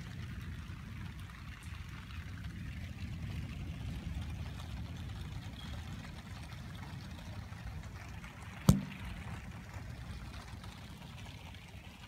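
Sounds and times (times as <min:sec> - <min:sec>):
steady rain: 0:00.0 - 0:12.0
sharp knock: 0:08.7 - 0:09.2.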